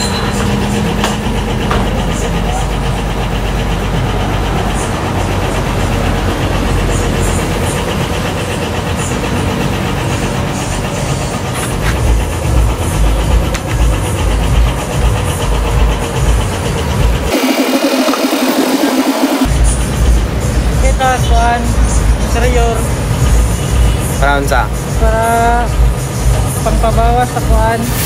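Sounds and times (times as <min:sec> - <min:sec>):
machine motor running: 0:00.0 - 0:20.5.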